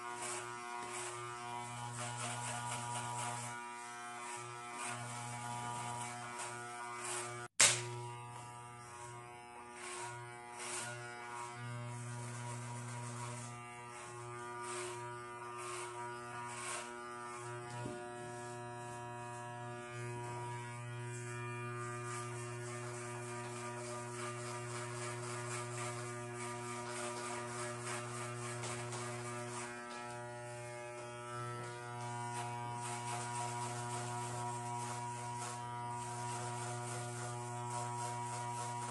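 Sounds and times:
electric hair clippers buzzing: 0.0 - 38.9
sharp click: 7.6 - 7.9.

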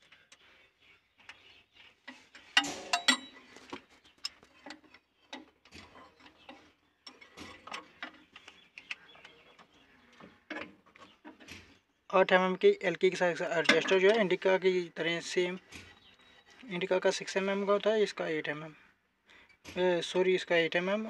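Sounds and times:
metallic clicks and knocks: 2.1 - 9.7, 13.6 - 14.3.

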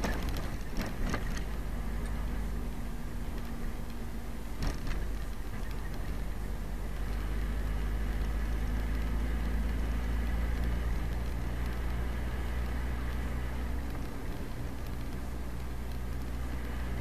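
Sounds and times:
vehicle engine and road noise: 0.0 - 17.0.

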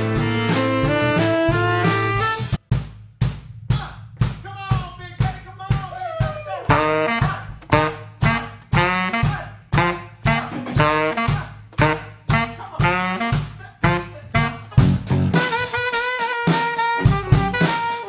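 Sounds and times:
saxophone playing: 0.0 - 2.6, 6.6 - 18.0
drum kit beat: 0.0 - 18.0.

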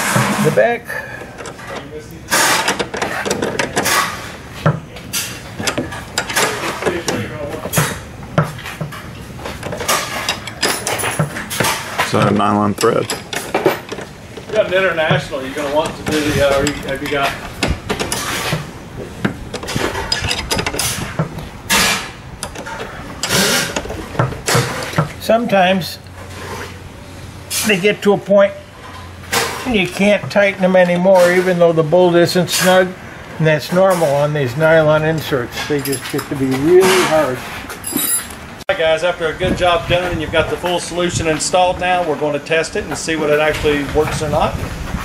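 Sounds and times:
wrench scraping and clicking on nut: 1.2 - 25.2, 35.2 - 38.4.

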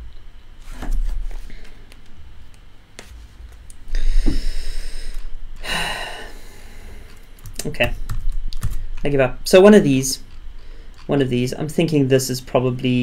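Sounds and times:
breath blowing onto microphone: 3.9 - 7.1.

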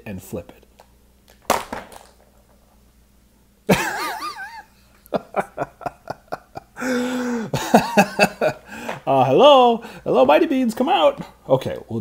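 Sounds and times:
plastic capsule knocking on table: 1.4 - 2.4.

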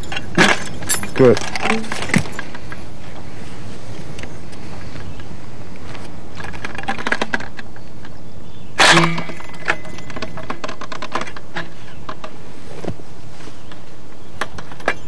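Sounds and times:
sharp metallic clack: 0.0 - 2.8, 8.8 - 11.3
small metallic clicks and rattles: 0.0 - 2.9, 6.0 - 8.2, 8.9 - 12.4, 14.4 - 15.0.

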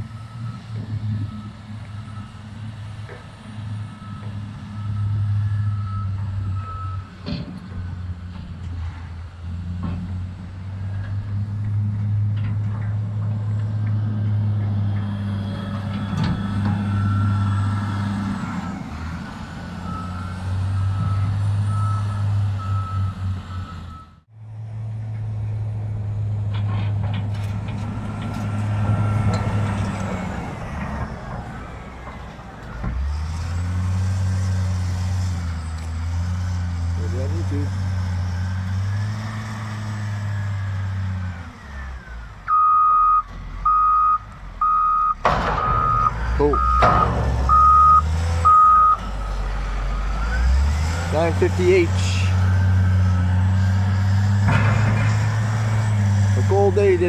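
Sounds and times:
diesel engine running: 0.0 - 57.0
backup alarm beeping: 42.5 - 49.0.

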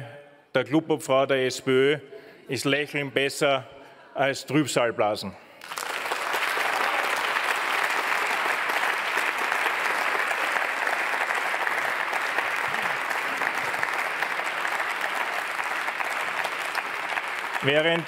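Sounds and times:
crowd applauding: 5.6 - 18.0.

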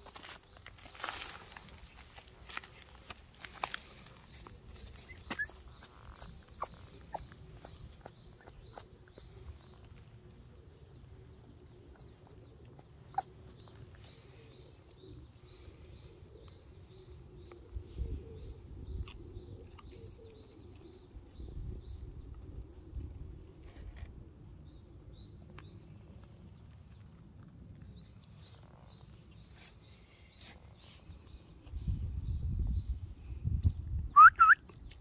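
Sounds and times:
puppy paws on gravelly dirt: 0.0 - 17.0
bird chirping: 4.2 - 22.7.

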